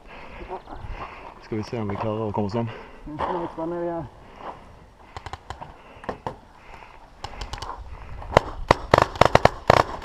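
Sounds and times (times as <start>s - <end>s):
paintball markers firing: 5.1s - 6.4s, 7.2s - 10.0s.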